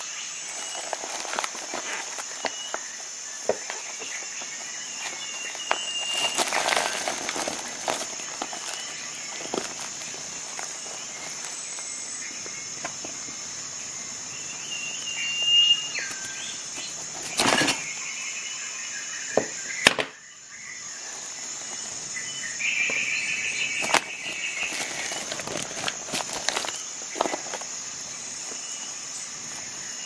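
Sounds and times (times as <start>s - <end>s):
rope rustling: 0.4s - 2.8s, 3.6s - 11.9s, 23.7s - 27.7s.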